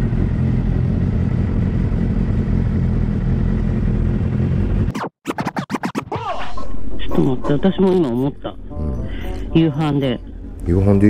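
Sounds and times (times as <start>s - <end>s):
motorcycle engines idling: 0.0s - 4.9s.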